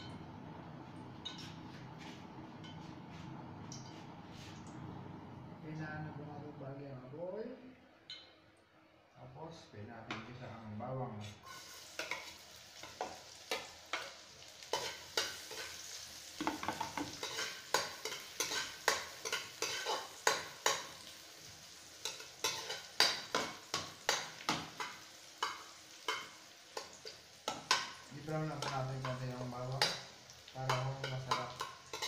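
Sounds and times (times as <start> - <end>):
garlic sizzling in oil: 11.4 - 32.0
metal spoon scraping a wok: 17.1 - 20.4, 22.0 - 22.9, 30.7 - 32.0.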